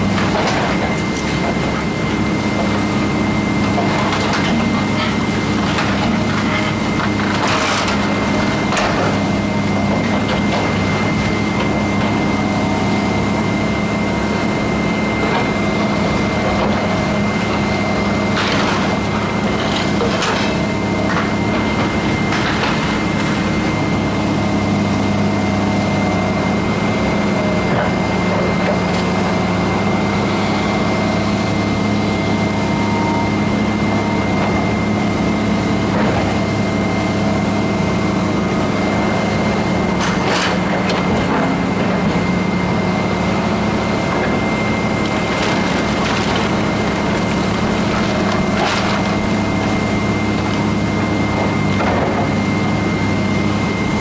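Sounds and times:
excavator diesel engine running: 0.0 - 54.0
debris cracking and crashing: 44.3 - 52.4.

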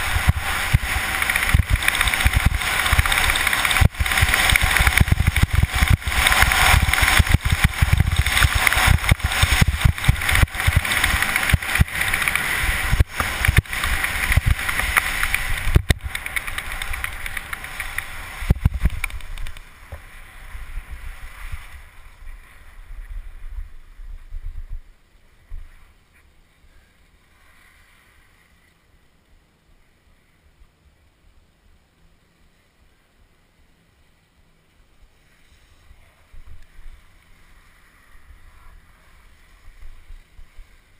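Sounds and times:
skis scraping over snow: 0.0 - 24.6
wind rushing: 0.0 - 24.8.

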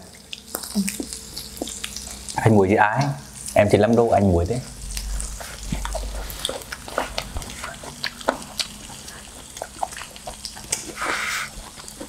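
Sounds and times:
pork sizzling on a grill plate: 0.0 - 12.0
crackling fat pops: 4.7 - 10.9.

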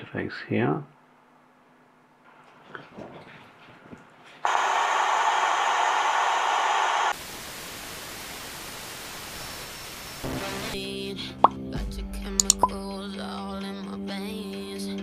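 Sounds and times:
radio static hiss: 4.5 - 10.8.

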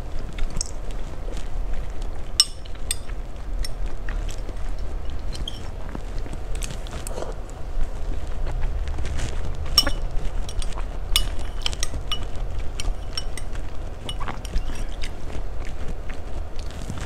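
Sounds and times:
low steady hum: 0.0 - 17.0
metal spoon clinking against glass: 2.4 - 3.8, 5.2 - 5.7, 9.8 - 15.1.

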